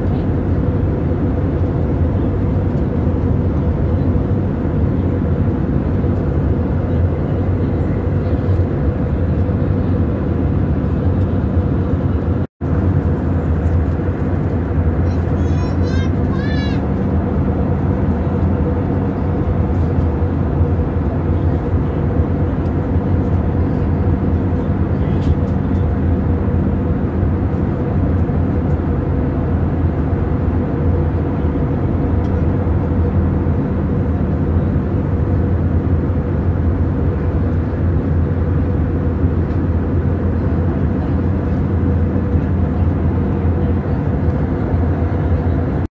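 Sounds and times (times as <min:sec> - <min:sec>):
airliner engine and airflow rumble: 0:00.0 - 0:45.9
steady cabin hum: 0:00.0 - 0:45.9.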